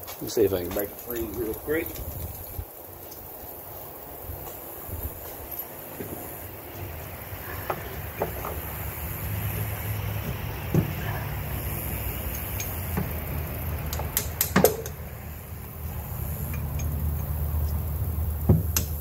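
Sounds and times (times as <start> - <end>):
steady low hum: 0.0 - 19.0
metal clicks and taps: 12.3 - 13.2, 13.8 - 15.0, 16.4 - 17.9, 18.7 - 19.0.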